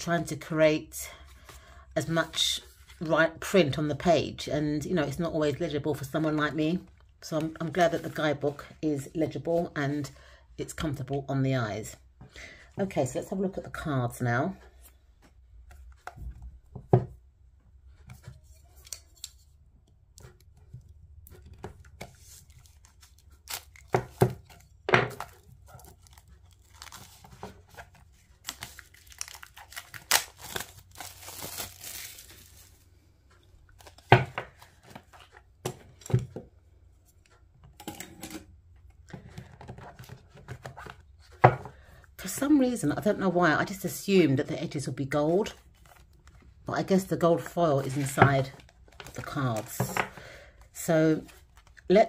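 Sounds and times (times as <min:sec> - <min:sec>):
plastic shrink-wrap crinkling: 0:25.2 - 0:32.9
shrink-wrap tearing: 0:28.4 - 0:32.7.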